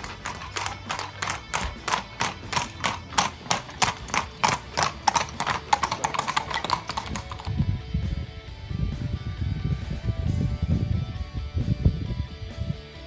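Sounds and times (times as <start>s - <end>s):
horse hooves clip-clopping on brick: 0.0s - 7.8s.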